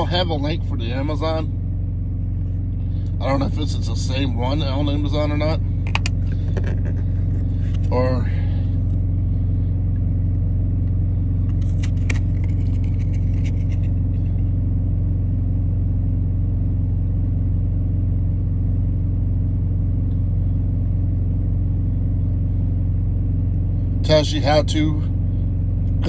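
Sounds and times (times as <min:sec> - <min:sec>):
diesel engine idling: 0:00.0 - 0:26.0
cards crackling and rustling: 0:06.4 - 0:07.9, 0:11.5 - 0:14.2.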